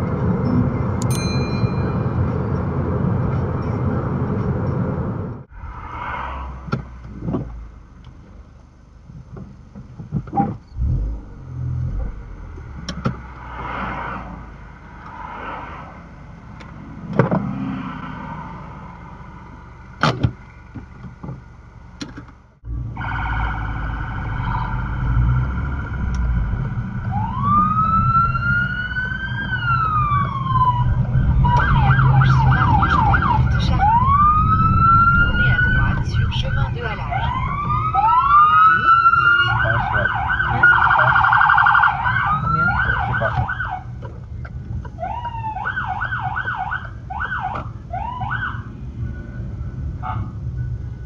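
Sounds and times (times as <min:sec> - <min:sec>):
low engine rumble: 0:00.0 - 0:51.0
police siren wailing and yelping: 0:27.0 - 0:43.9, 0:44.9 - 0:49.3.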